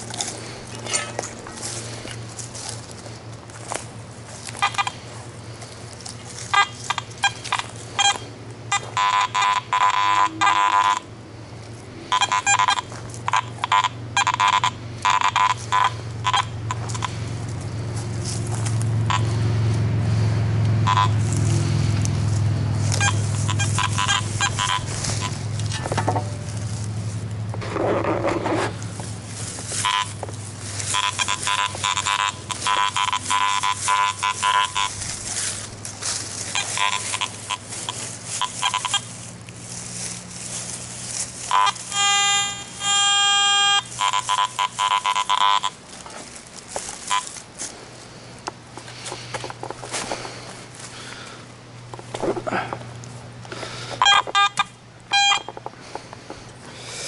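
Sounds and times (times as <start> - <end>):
metal detector beeps: 0.0 - 1.8, 4.4 - 5.0, 6.4 - 11.1, 12.1 - 17.2, 18.7 - 19.5, 20.8 - 21.4, 22.8 - 26.5, 29.8 - 35.0, 36.4 - 39.2, 41.5 - 45.8, 47.0 - 47.4, 54.0 - 55.7
low steady hum: 0.0 - 57.0.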